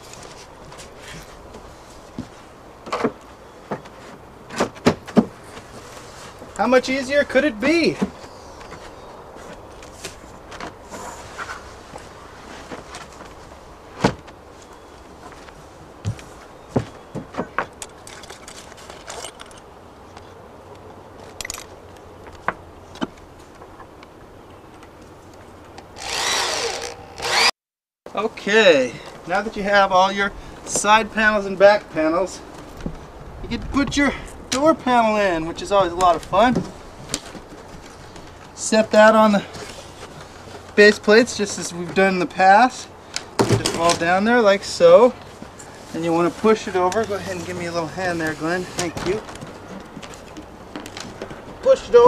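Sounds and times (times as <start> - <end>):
power drill driving a screw: 26.0 - 27.6.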